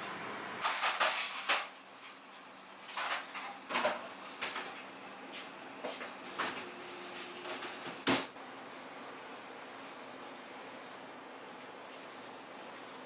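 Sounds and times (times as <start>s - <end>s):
dishes and utensils clattering: 0.6s - 1.7s.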